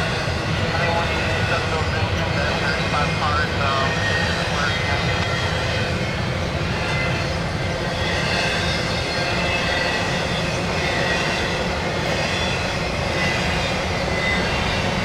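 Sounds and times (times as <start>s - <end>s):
train cars rumbling on rails: 0.0s - 15.0s
faint high wheel squeals: 6.6s - 15.0s.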